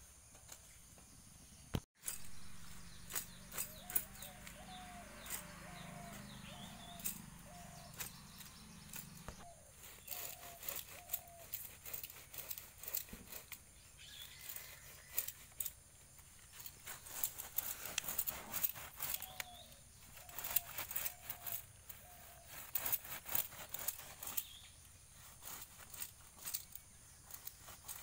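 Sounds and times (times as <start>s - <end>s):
animal calling: 2.9s - 11.7s.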